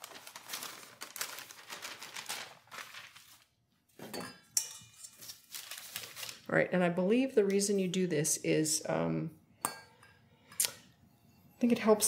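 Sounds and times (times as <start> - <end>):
parchment paper rustling: 0.0 - 3.7, 5.1 - 6.5.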